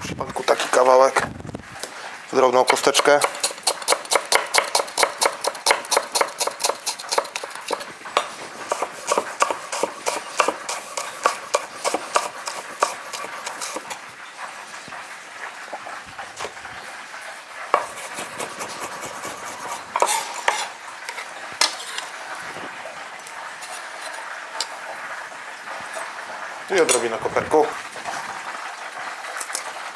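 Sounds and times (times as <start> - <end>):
knife chopping on wooden board: 2.7 - 14.0, 17.7 - 20.7
knife scraping board: 2.7 - 14.0, 17.7 - 22.2, 23.6 - 24.3.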